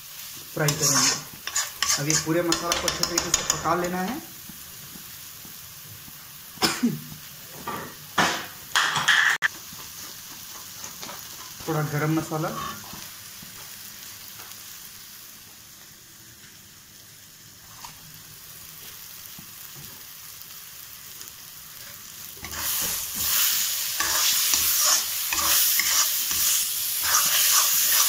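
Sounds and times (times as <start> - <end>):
food sizzling in a pan: 0.0 - 28.0
metal spatula scraping a pan: 0.6 - 4.1, 21.8 - 28.0.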